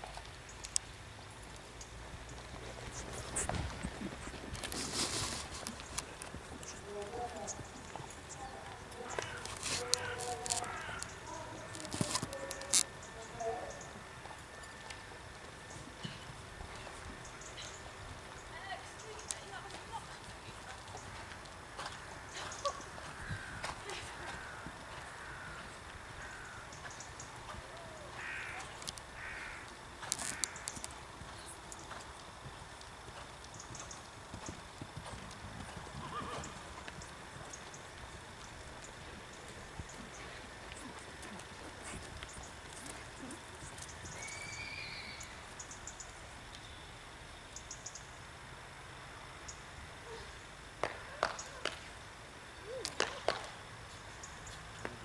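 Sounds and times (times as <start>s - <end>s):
drawn-out high call: 2.9s - 17.8s, 35.7s - 45.8s
bird cawing: 9.0s - 11.4s, 22.5s - 27.1s, 27.9s - 30.8s.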